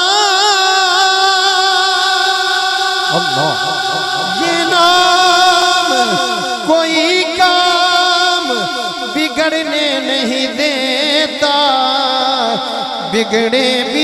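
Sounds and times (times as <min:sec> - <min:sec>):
man singing ornamented passage: 0:00.0 - 0:14.0
held backing drone: 0:03.1 - 0:06.8.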